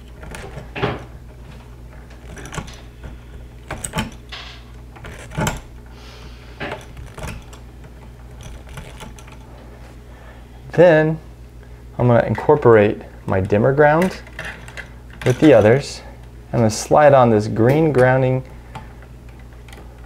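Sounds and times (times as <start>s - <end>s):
pliers twisting metal wires: 0.0s - 1.3s, 1.9s - 5.8s, 6.6s - 9.4s, 13.3s - 15.8s.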